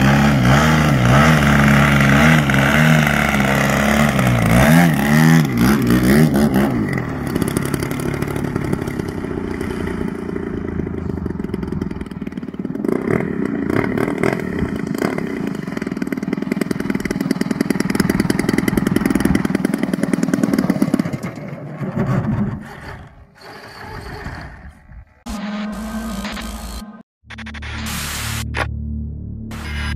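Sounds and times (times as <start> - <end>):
model plane gas engine: 0.0 - 26.8
music: 27.2 - 29.9.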